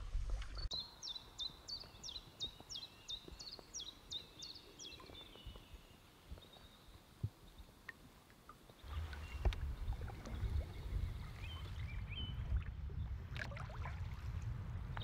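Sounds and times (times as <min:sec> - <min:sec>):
water sounds: 0:00.0 - 0:00.7, 0:07.2 - 0:15.0.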